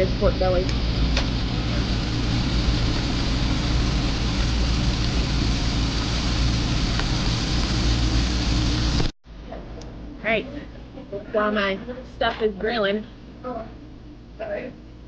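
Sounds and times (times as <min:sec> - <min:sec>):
low drone: 0:00.0 - 0:09.1
meat sizzling on grill: 0:00.0 - 0:09.2.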